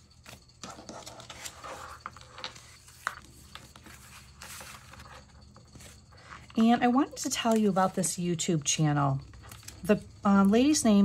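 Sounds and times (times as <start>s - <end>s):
paper sheets rustling: 0.2s - 6.0s.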